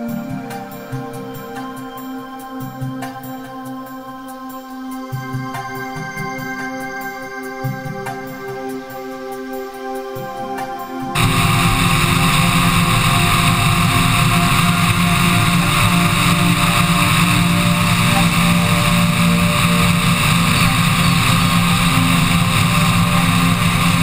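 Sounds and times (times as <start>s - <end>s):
microlight engine running: 11.2s - 24.0s
wind rush on microphone: 11.2s - 24.0s.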